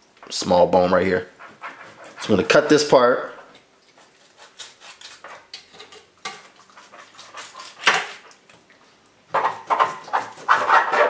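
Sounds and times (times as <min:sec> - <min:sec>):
knife cutting on a cutting board: 0:01.4 - 0:02.6, 0:04.0 - 0:05.6, 0:06.8 - 0:08.2, 0:09.4 - 0:11.0.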